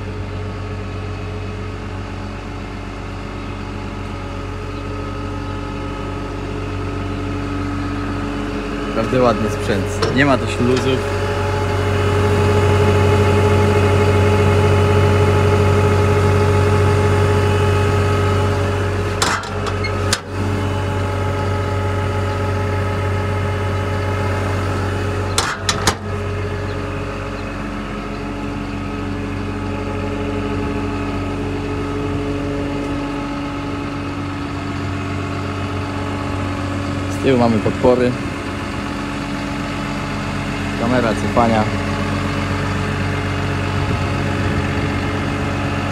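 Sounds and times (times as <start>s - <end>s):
diesel engine idling: 0.0s - 45.9s.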